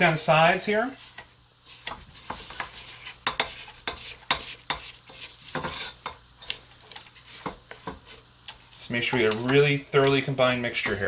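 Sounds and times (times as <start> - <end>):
spatula scraping metal bowl: 0.9 - 8.2.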